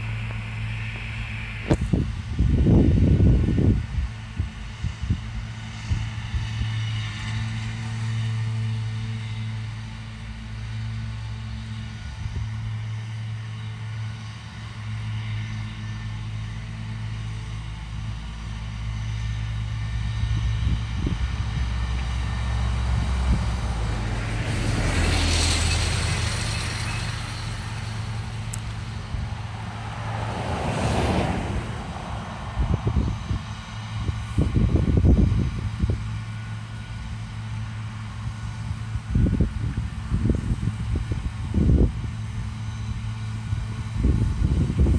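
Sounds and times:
tractor diesel engine droning: 0:00.0 - 0:44.9
rushing noise: 0:18.0 - 0:44.9.

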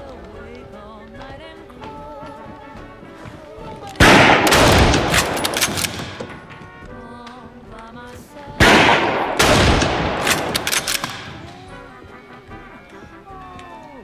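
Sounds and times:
film score music: 0:00.0 - 0:14.0
gunshots echoing: 0:04.0 - 0:06.9, 0:08.6 - 0:11.7.

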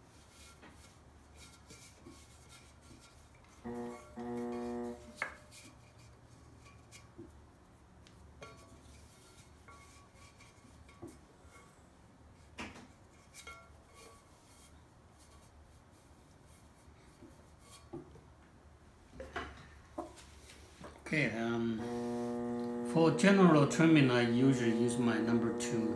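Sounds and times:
low steady hum: 0:03.1 - 0:06.8, 0:18.4 - 0:25.9.

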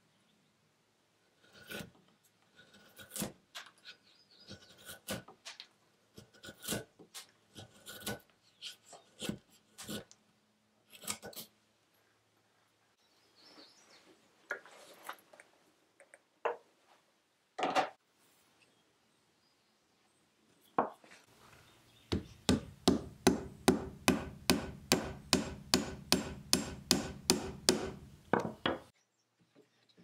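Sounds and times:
hammer tapping wooden wedge: 0:22.1 - 0:28.9.

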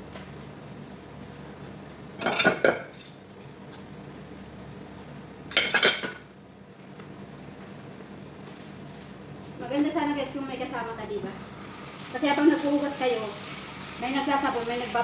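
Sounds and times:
dishes clattering in a sink: 0:02.2 - 0:03.2, 0:05.5 - 0:06.2.

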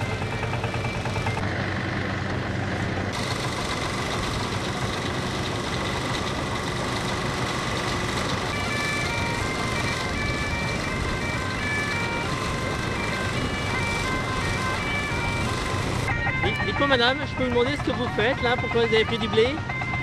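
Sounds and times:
combine harvester droning: 0:00.0 - 0:20.0.

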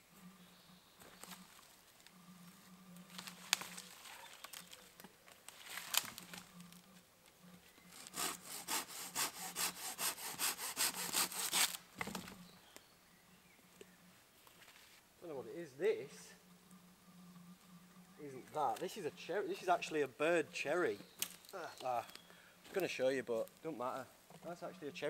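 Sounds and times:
saw strokes cutting branch: 0:07.9 - 0:11.8.

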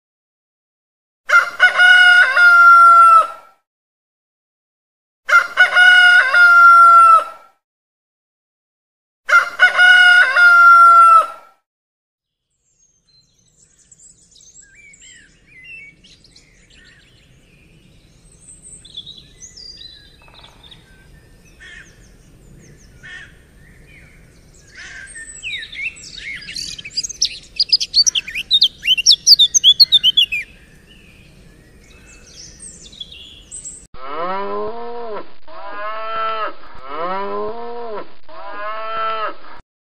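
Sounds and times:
rooster crowing: 0:01.3 - 0:03.4, 0:05.3 - 0:07.4, 0:09.3 - 0:11.5
small birds chirping: 0:12.6 - 0:33.9.

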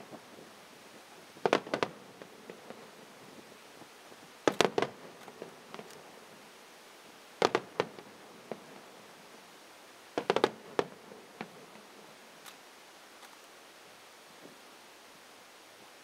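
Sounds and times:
faint firework pops: 0:01.4 - 0:02.8, 0:04.5 - 0:06.0, 0:07.4 - 0:08.7, 0:10.2 - 0:11.6
firework bangs: 0:01.4 - 0:03.0, 0:04.4 - 0:06.3, 0:07.4 - 0:09.0, 0:10.2 - 0:11.8.

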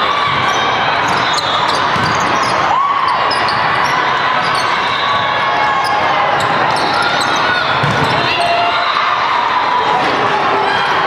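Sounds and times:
murmur of voices: 0:00.0 - 0:11.0
shoes squeaking on sport floor: 0:00.5 - 0:05.2, 0:05.8 - 0:08.5
balls thudding: 0:07.8 - 0:08.3.

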